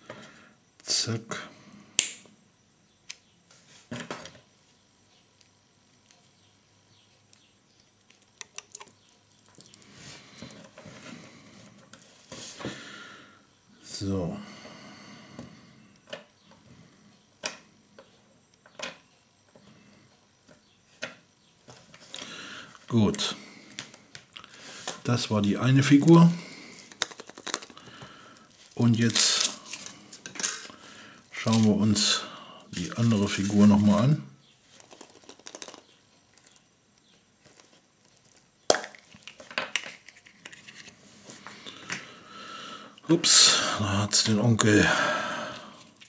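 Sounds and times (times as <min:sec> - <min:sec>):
chocolate shell crackling: 0:07.4 - 0:10.0, 0:26.4 - 0:32.1, 0:34.7 - 0:40.7
chocolate shell cracking: 0:26.8 - 0:30.8, 0:34.8 - 0:36.6, 0:37.4 - 0:40.6
plastic toy parts clicking on wood: 0:34.8 - 0:35.8.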